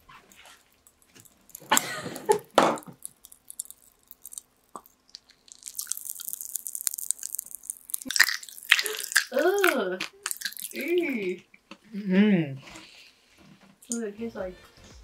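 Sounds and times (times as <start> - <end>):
popping candy crackling: 0.0 - 11.8.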